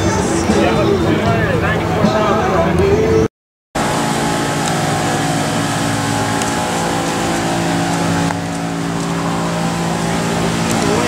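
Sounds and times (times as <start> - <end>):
engine running steadily: 3.8 - 11.0.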